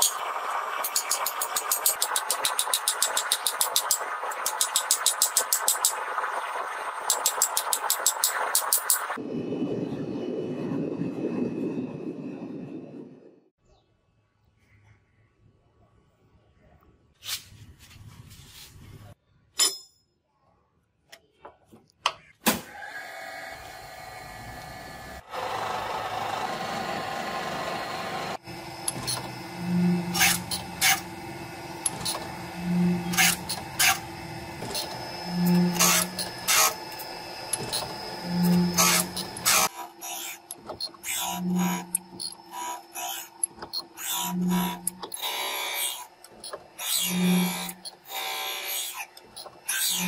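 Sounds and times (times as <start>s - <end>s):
surface grinder humming and whining: 23.1s - 50.0s.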